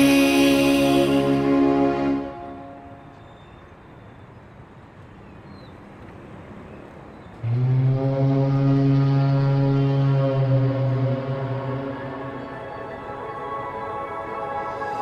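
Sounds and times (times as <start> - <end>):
low drone music note: 0.0 - 3.2, 7.4 - 15.0.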